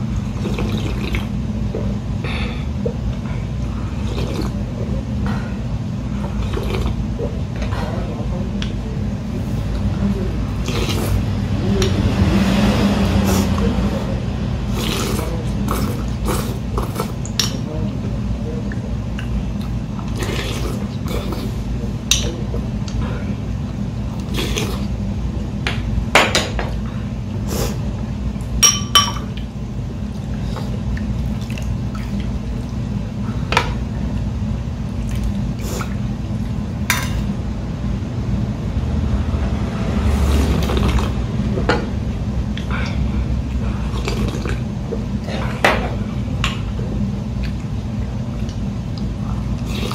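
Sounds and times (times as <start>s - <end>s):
steady low hum: 0.0s - 49.9s
person sipping: 0.2s - 4.8s, 6.2s - 7.4s, 9.4s - 11.3s, 12.4s - 17.4s, 19.6s - 21.8s, 24.2s - 25.0s, 35.0s - 36.0s, 40.0s - 41.2s, 42.5s - 45.6s, 48.4s - 49.9s.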